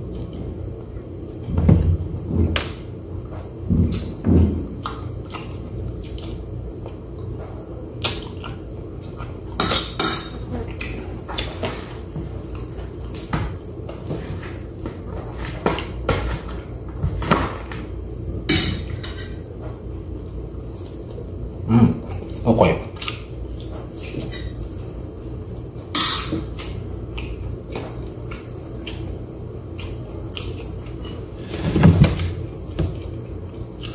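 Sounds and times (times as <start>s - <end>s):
steady low hum: 0.0s - 33.9s
dishes clinking: 18.5s - 19.4s.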